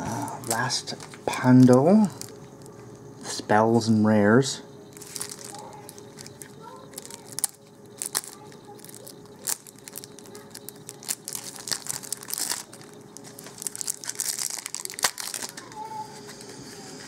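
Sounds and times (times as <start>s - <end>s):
plastic shrink-wrap crinkling and tearing: 0.4s - 2.7s, 4.9s - 16.0s.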